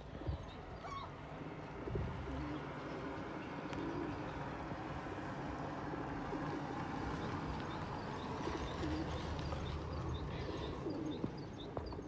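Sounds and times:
pigeons cooing: 0:02.2 - 0:04.5, 0:06.2 - 0:12.0.

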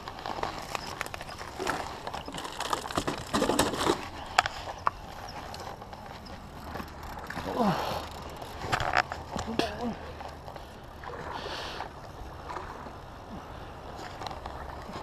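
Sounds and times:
landing net handling: 0:00.0 - 0:09.9
footsteps on rock and sticks: 0:00.0 - 0:10.8.

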